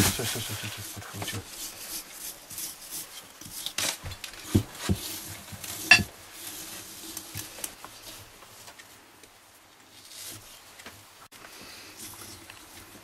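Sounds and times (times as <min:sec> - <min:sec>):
knife knocks and clinks: 0:05.9 - 0:06.1.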